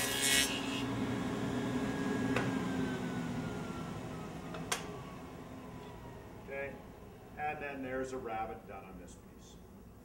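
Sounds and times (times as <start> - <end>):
table saw cutting wood: 0.0 - 4.3
saw blade spinning whine: 0.0 - 8.4.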